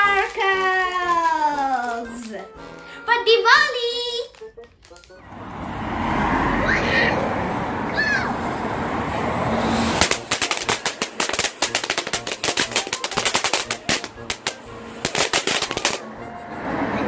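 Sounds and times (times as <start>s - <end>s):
fireworks crackling: 9.6s - 16.1s.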